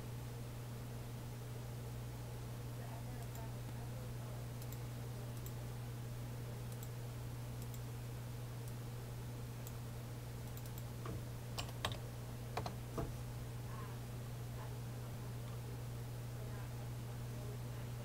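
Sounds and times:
low electrical hum: 0:00.0 - 0:18.0
computer mouse clicking: 0:06.7 - 0:06.9, 0:07.6 - 0:07.8, 0:10.4 - 0:12.0.

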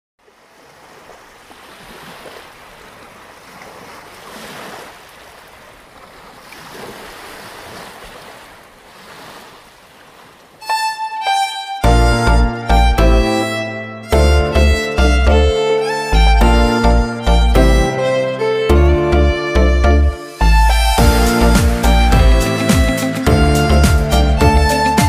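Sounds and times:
sea surf washing in: 0:00.3 - 0:11.6
music with loud chords and bass: 0:11.8 - 0:13.4, 0:14.1 - 0:15.6, 0:16.2 - 0:18.0, 0:18.7 - 0:25.0.

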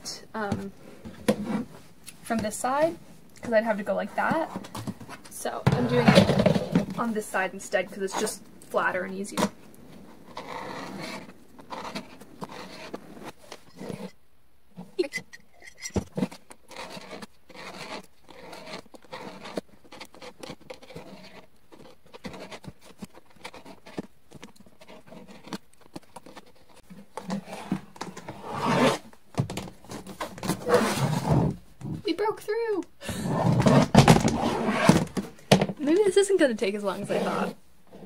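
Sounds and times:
box cutter scraping plastic: 0:10.2 - 0:14.1, 0:15.9 - 0:31.6.

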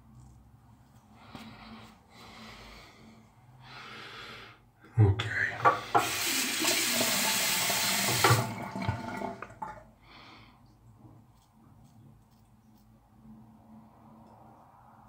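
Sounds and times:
tap running into sink: 0:05.6 - 0:09.7.

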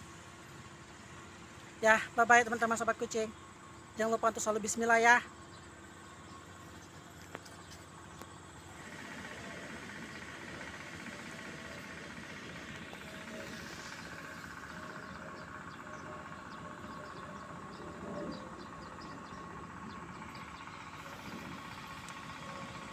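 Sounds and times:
low hum: 0:00.0 - 0:22.9
thin steady whine: 0:00.0 - 0:22.9.

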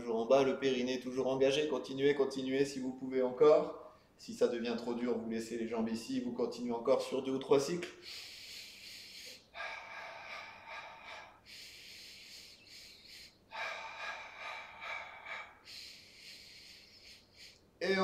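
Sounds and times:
man breathing heavily: 0:07.9 - 0:17.8.

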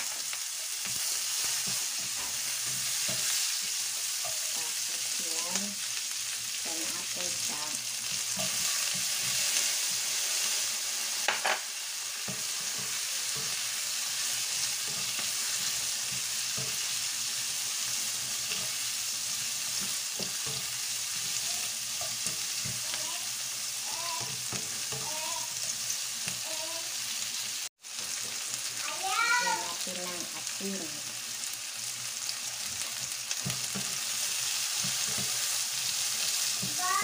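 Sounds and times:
spatula scraping a wok: 0:00.0 - 0:05.3, 0:06.6 - 0:11.6, 0:12.2 - 0:22.9, 0:32.6 - 0:36.8
vegetables sizzling in hot oil: 0:00.0 - 0:37.0.

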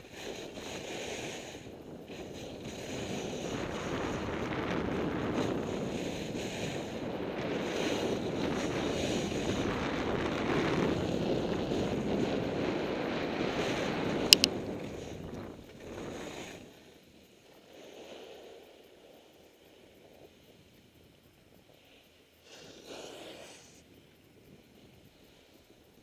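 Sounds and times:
wind buffeting microphone: 0:00.0 - 0:16.6
skis scraping over snow: 0:00.0 - 0:20.7, 0:21.7 - 0:24.0
sharp clicks: 0:14.3 - 0:14.6.

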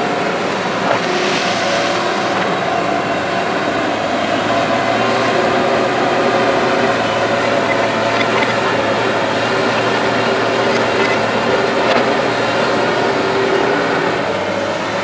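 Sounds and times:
excavator engine and hydraulics: 0:00.0 - 0:15.0.

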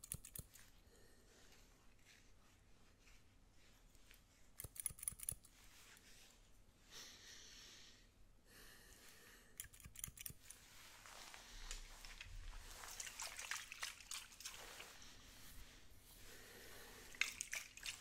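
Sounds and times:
scissors snipping: 0:00.0 - 0:00.6, 0:04.6 - 0:05.5, 0:09.6 - 0:10.5
soft brushing hiss: 0:10.3 - 0:18.0.

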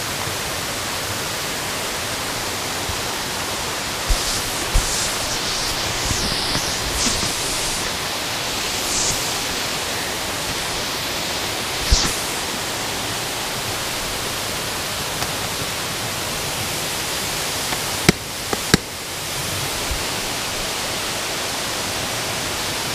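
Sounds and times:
creek water rushing: 0:01.9 - 0:16.4.

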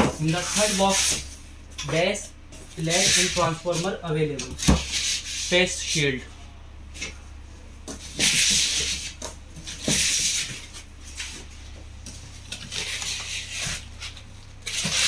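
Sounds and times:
foam and plastic rustling: 0:12.4 - 0:15.0.

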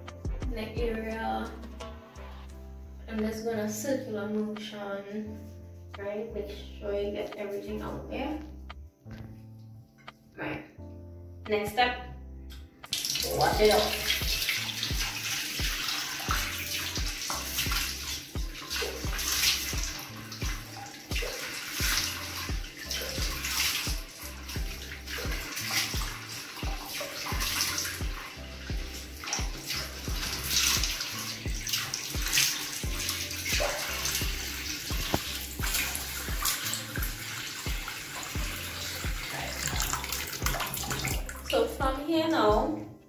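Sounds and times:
water splashing on face: 0:12.9 - 0:41.6
sink tap running: 0:12.9 - 0:41.7.

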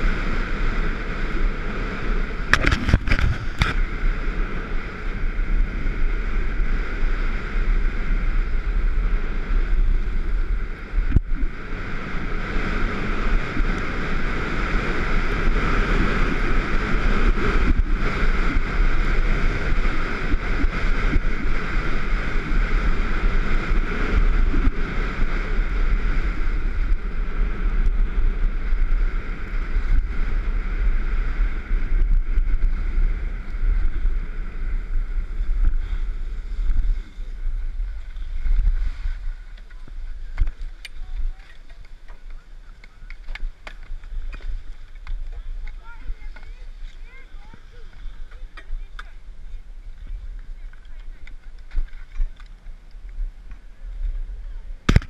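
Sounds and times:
wind buffeting microphone: 0:00.0 - 0:55.0
skis hissing on packed snow: 0:35.2 - 0:40.0.

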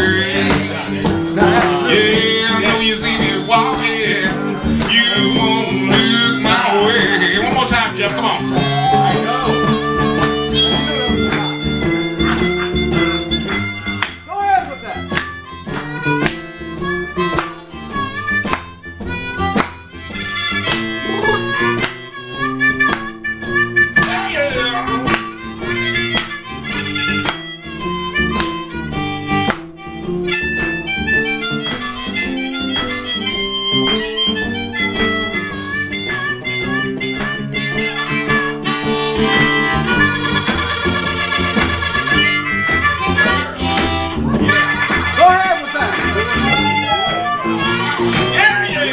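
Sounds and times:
acoustic guitar strumming: 0:00.0 - 0:48.9
blues harmonica: 0:00.0 - 0:48.9.

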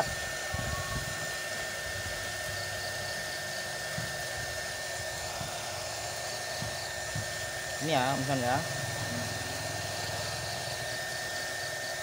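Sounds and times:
heat gun blowing with whine: 0:00.0 - 0:12.0.

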